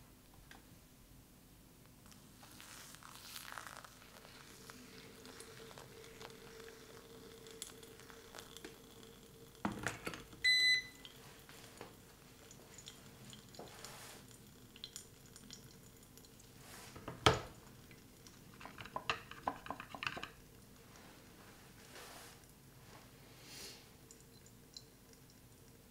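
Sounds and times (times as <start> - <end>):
double electronic beep: 10.5 - 10.9.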